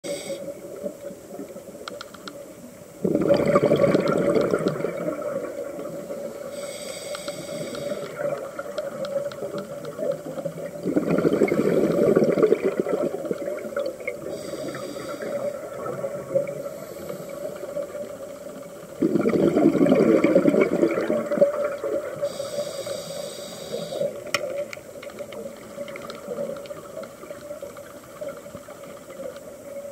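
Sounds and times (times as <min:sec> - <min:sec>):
regulator inhalation hiss: 0:00.0 - 0:00.7, 0:05.9 - 0:08.3, 0:14.2 - 0:15.9, 0:16.5 - 0:18.2, 0:22.2 - 0:24.3
exhaled bubbles rushing: 0:03.0 - 0:06.5, 0:07.9 - 0:14.4, 0:15.2 - 0:16.8, 0:17.4 - 0:22.3.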